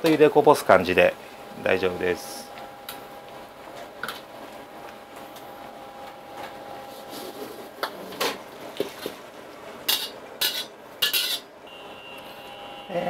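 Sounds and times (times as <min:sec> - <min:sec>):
clatter and water splashing: 0:08.7 - 0:09.2
ladle knocking and scraping in a wok: 0:09.9 - 0:11.5.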